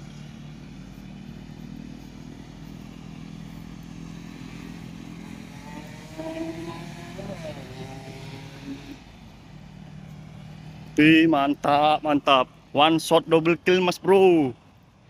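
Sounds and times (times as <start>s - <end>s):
small engine running: 0.0s - 15.0s.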